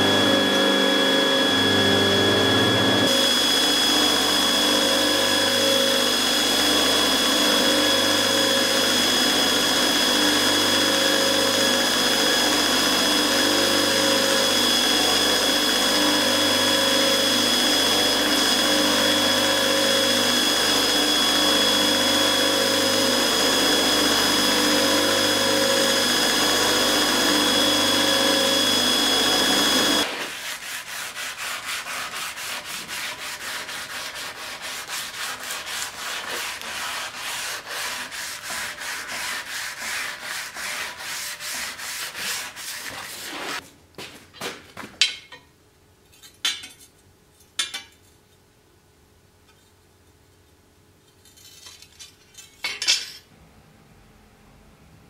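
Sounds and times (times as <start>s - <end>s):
belt grinder whining: 0.0s - 30.8s
sanding block rubbing steel: 23.8s - 43.6s.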